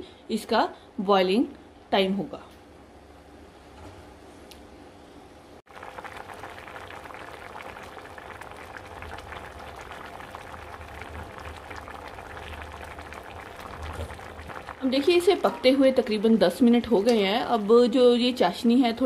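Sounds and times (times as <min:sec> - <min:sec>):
syrup boiling in a pot: 0:05.6 - 0:19.0.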